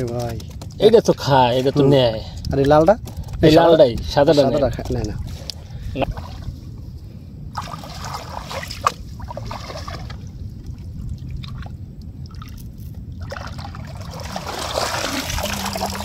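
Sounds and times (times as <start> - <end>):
hands splashing in muddy water: 13.2 - 16.0.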